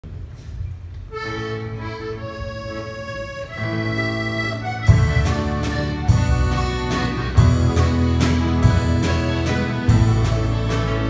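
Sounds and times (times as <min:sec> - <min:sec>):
button accordion melody: 0:01.1 - 0:11.0
drum beats: 0:04.6 - 0:11.0
strummed acoustic guitar: 0:04.6 - 0:11.0.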